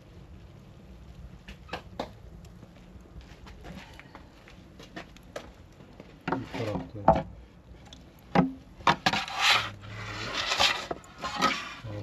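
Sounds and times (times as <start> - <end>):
scraping: 8.4 - 12.0.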